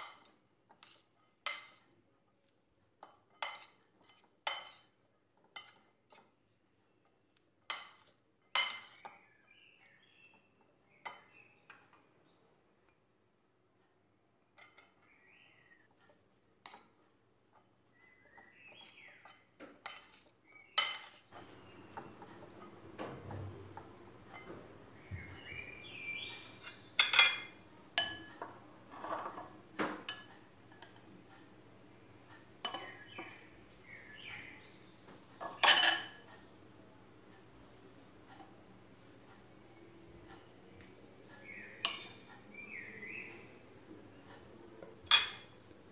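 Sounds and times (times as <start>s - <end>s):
metal spoon stirring food: 0.0s - 13.0s, 15.9s - 31.6s, 32.2s - 36.6s, 41.2s - 43.5s
spoon clinking against glass: 27.0s - 28.4s, 32.6s - 33.1s, 35.5s - 36.2s, 45.1s - 45.6s.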